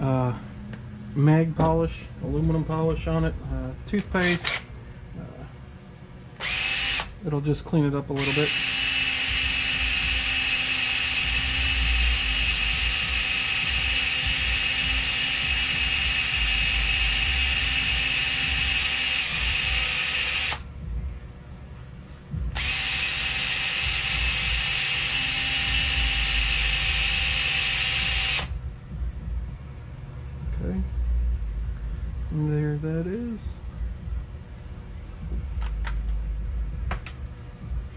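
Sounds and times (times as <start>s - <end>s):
small power tool polishing metal: 6.4s - 7.1s, 8.2s - 20.6s, 22.6s - 28.5s.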